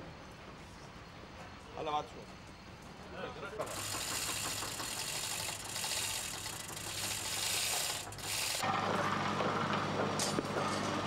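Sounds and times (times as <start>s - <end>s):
high rasping scraping: 3.6s - 8.6s.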